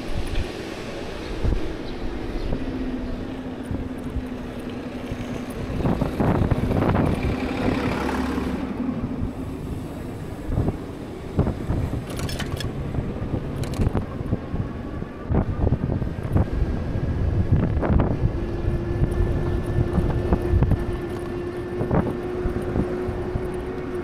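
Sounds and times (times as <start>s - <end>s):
street traffic hum: 0.0s - 24.0s.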